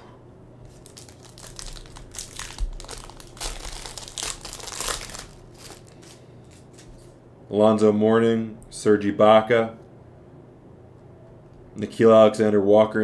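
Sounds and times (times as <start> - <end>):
foil wrapper crinkling: 0.7 - 7.2.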